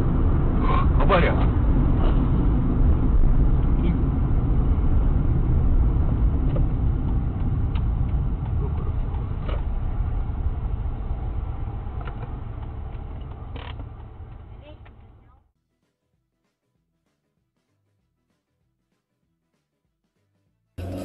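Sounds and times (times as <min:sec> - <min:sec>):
car engine rumble: 0:00.0 - 0:15.4
road noise inside car: 0:00.0 - 0:15.4.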